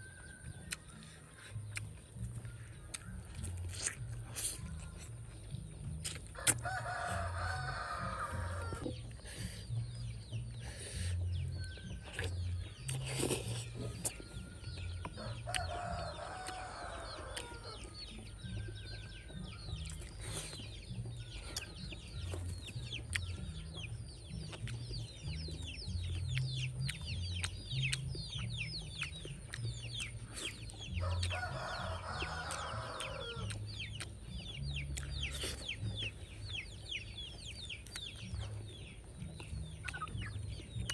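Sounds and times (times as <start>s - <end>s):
rooster crowing: 6.6s - 8.8s, 15.2s - 17.8s, 31.0s - 33.4s.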